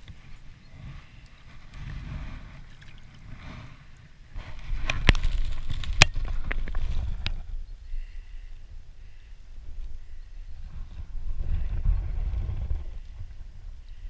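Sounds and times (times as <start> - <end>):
water sloshing and splashing: 0.0 - 7.2
wind rumble on microphone: 0.0 - 14.0.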